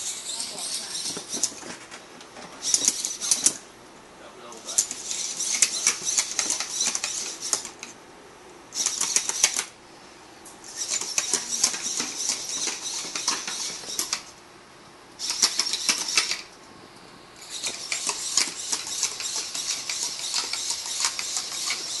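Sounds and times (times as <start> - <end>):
servo motors buzzing: 0.0 - 1.6, 2.6 - 3.6, 4.6 - 7.9, 8.7 - 9.7, 10.6 - 14.3, 15.2 - 16.5, 17.4 - 22.0
robot feet clattering on tiles: 4.8 - 7.7, 10.8 - 14.2.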